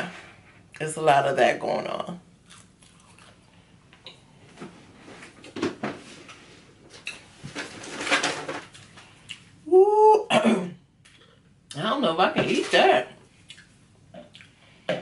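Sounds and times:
faint chewing and clicks: 0:13.4 - 0:14.6.

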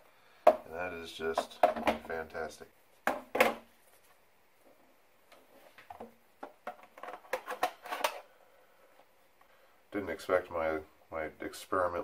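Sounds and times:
plastic knocks: 0:01.4 - 0:02.1, 0:03.0 - 0:03.7.

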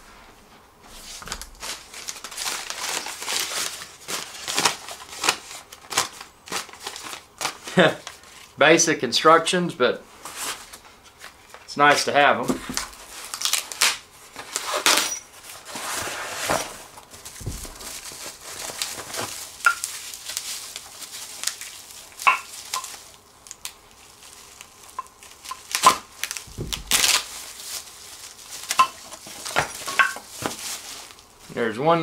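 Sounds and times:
cardboard rustling: 0:00.9 - 0:08.2, 0:10.2 - 0:23.2, 0:23.8 - 0:31.3
plastic crinkling: 0:01.0 - 0:08.6, 0:10.2 - 0:31.6
knife slitting packing tape: 0:01.2 - 0:07.6, 0:12.8 - 0:15.3, 0:25.4 - 0:27.6.

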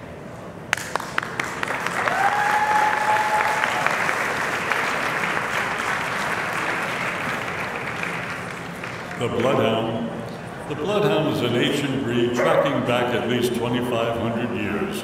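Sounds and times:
audience applauding: 0:00.7 - 0:09.8.

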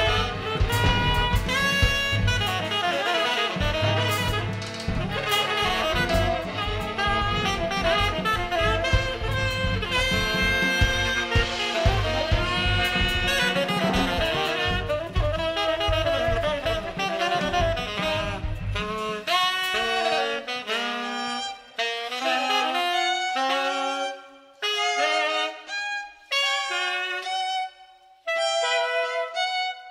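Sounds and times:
drum kit: 0:00.0 - 0:23.6
tenor saxophones improvising: 0:00.0 - 0:29.9.

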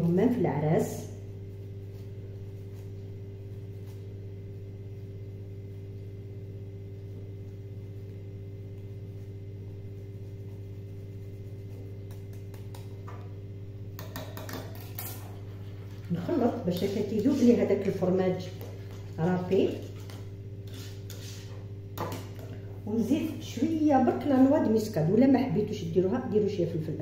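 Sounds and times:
low electrical hum: 0:00.0 - 0:27.0
cheese grater scraping: 0:19.7 - 0:21.5.

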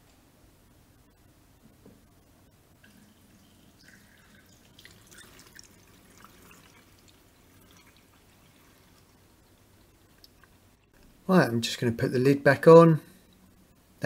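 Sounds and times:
water drips and splashes: 0:02.8 - 0:10.6
water trickling through funnel: 0:02.8 - 0:10.6.

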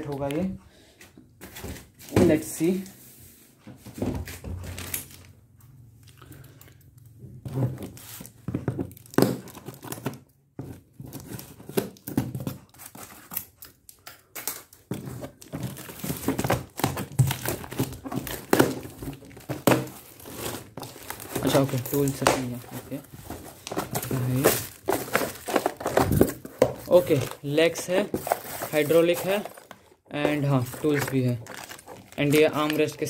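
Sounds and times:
plastic packaging crinkling and tearing: 0:07.8 - 0:10.3, 0:11.0 - 0:33.0.

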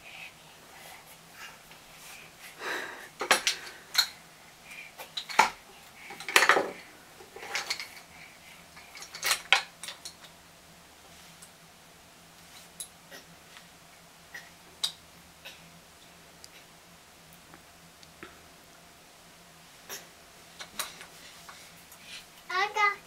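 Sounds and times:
plastic toy clattering and rattling: 0:05.2 - 0:06.8, 0:07.4 - 0:08.0, 0:08.8 - 0:10.3.

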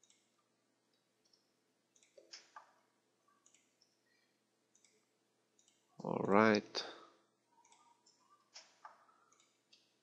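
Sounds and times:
mouse and keyboard clicks: 0:03.4 - 0:05.0, 0:07.6 - 0:09.9.

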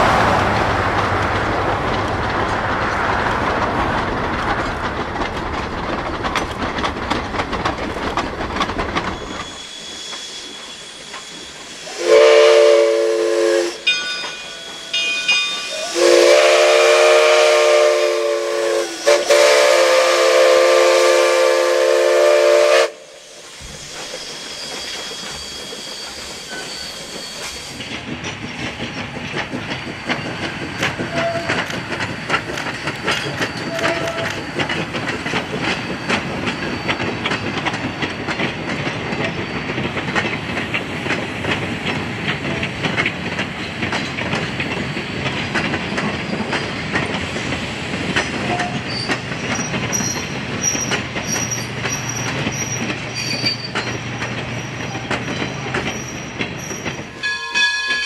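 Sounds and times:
train wheels clattering on rails: 0:00.0 - 0:58.0
steam locomotive chime whistle: 0:09.2 - 0:27.8, 0:29.8 - 0:34.7, 0:35.6 - 0:39.8, 0:48.4 - 0:58.0.

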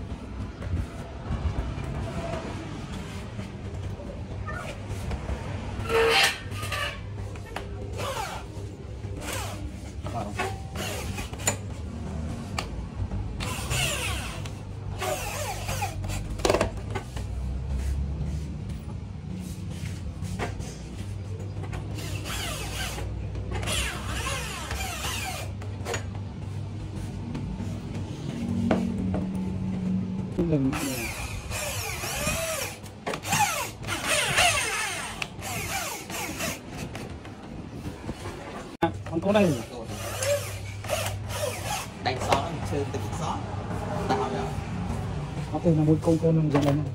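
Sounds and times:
cordless drill boring into wood: 0:30.8 - 0:36.6.

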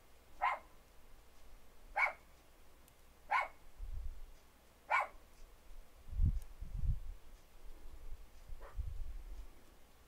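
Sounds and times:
dog barking: 0:00.4 - 0:00.8, 0:01.9 - 0:02.3, 0:03.3 - 0:03.6, 0:04.9 - 0:05.2.

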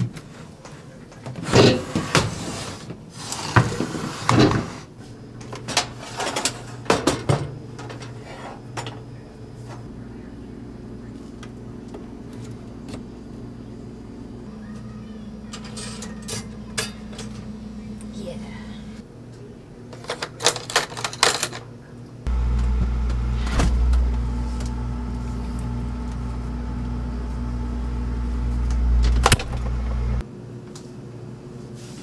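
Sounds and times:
steady low hum: 0:04.8 - 0:20.0, 0:21.7 - 0:32.0.

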